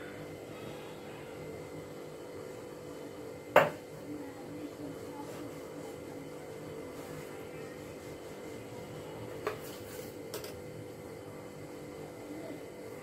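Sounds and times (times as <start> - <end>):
steady hum: 0.0 - 13.0.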